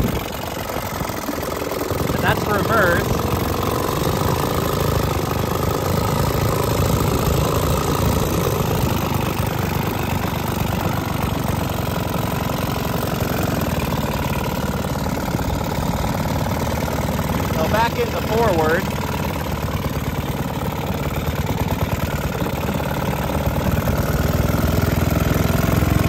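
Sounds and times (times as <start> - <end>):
two-stroke outboard engine running: 0.0 - 26.0.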